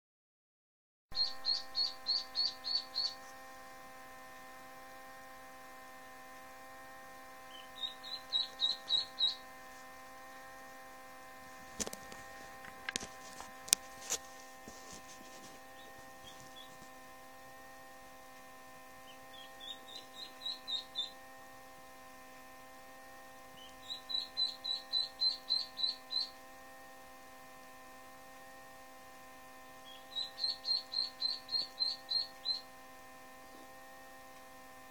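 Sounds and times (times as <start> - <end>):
steady hum: 1.1 - 34.9
duckling peeping: 1.2 - 3.4, 7.5 - 10.8, 15.1 - 16.9, 19.0 - 21.3, 23.6 - 26.4, 29.8 - 32.7.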